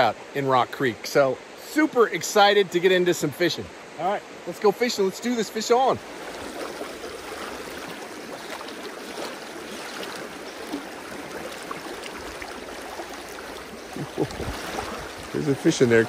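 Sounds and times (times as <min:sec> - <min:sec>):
creek water rushing over rocks: 0:00.0 - 0:16.0.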